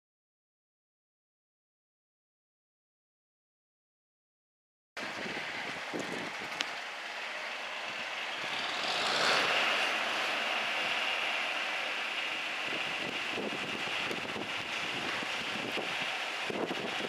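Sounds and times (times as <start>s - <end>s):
high whine: 5.0s - 17.0s
tractor engine running: 5.0s - 17.0s.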